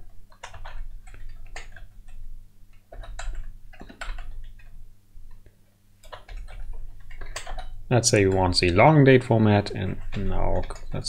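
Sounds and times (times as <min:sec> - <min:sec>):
computer keyboard typing: 0:00.0 - 0:04.8, 0:06.0 - 0:11.0.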